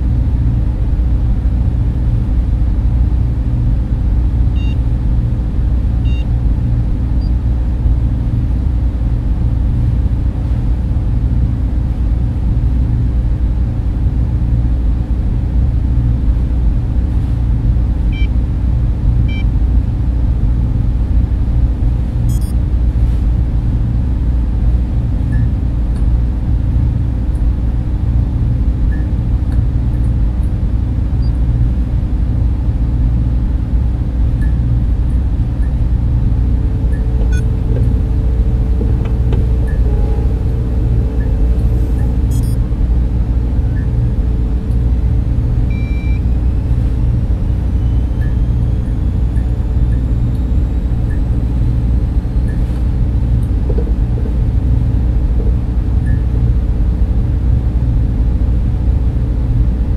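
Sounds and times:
cooling fans rushing: 0.0 - 59.9
server machines humming: 0.0 - 59.9
short high electronic beeps: 22.3 - 22.5, 36.8 - 42.7, 45.6 - 50.2.

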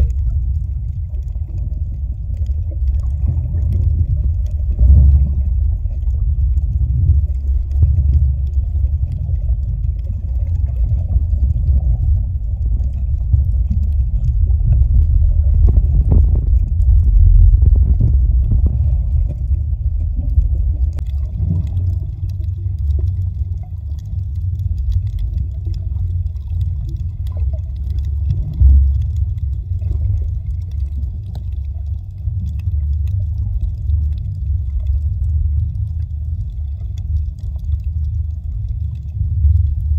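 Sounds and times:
muffled underwater rumble: 0.0 - 39.9.

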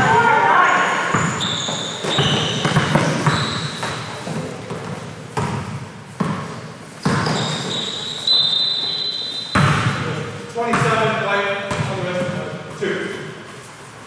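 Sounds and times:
basketball bouncing on hardwood floor: 1.1 - 7.7, 9.5 - 10.0, 10.7 - 11.0, 11.7 - 12.3.

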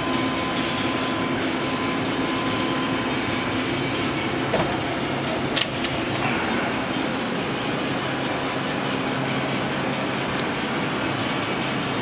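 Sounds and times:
faint high whine: 0.0 - 5.2
lathe mechanical hum: 0.0 - 12.0.

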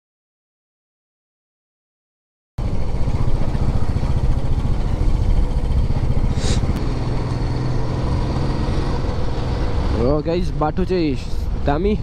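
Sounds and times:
motorcycle engine running: 2.6 - 12.0
brief hiss: 6.3 - 6.8.

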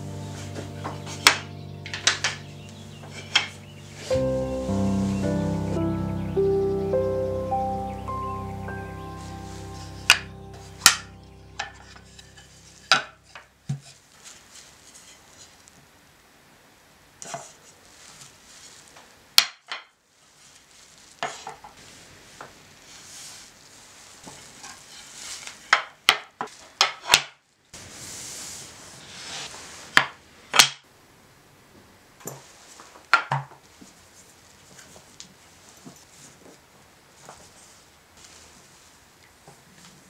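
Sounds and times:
wood sliding and rubbing: 27.8 - 30.0.

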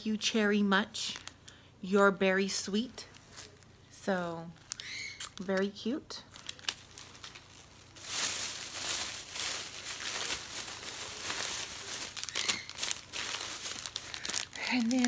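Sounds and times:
plastic packaging crinkling: 1.0 - 1.5, 2.8 - 3.8, 4.5 - 15.0.

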